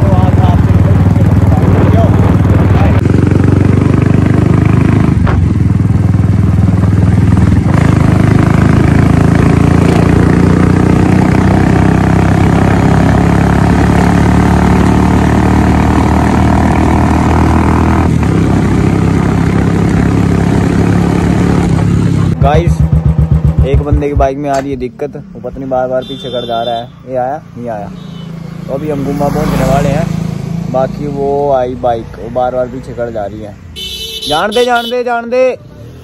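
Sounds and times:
motorcycle engine deep beat: 17.3s - 26.4s.

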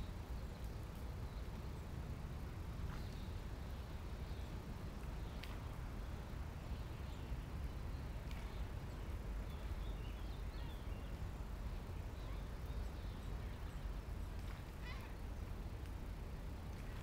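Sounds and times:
birds chirping: 2.9s - 15.6s.

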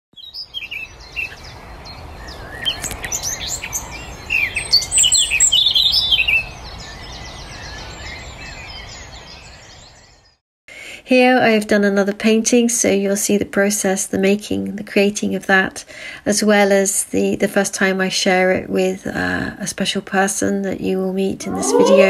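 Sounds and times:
songbirds chirping and trilling: 0.2s - 10.4s.

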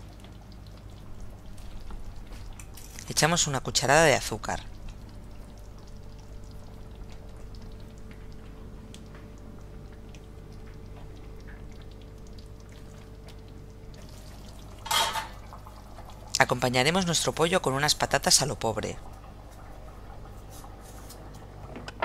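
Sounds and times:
sauce bubbling in a frying pan: 0.0s - 21.8s
steady low hum: 0.0s - 22.0s.

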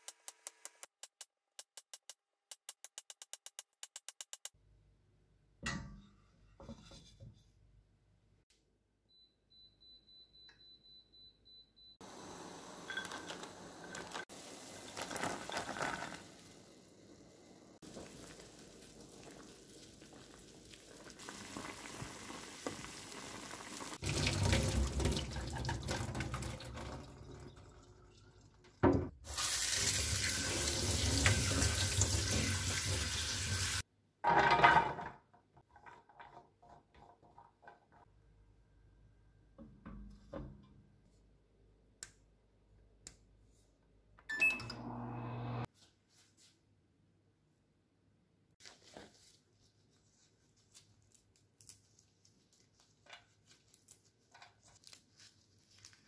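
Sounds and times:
water bubbling in a pan: 17.8s - 28.5s
water rushing from a tap: 21.2s - 33.8s
touch panel beeps: 44.3s - 44.8s.

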